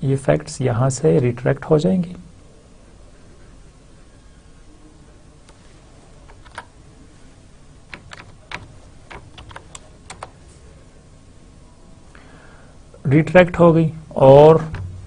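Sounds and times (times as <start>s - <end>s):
computer keyboard typing: 6.3s - 6.7s, 7.9s - 10.4s.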